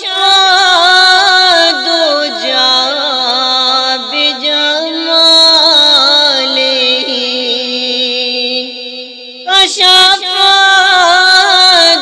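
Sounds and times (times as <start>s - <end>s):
high voice singing devotional song: 0.0s - 12.0s.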